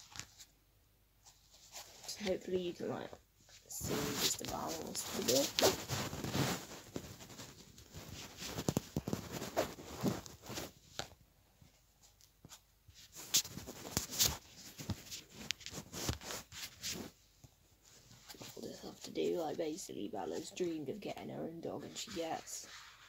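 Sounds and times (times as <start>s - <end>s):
fabric brushing against phone: 1.2s - 2.7s, 3.4s - 11.8s, 12.4s - 17.2s, 21.8s - 23.0s.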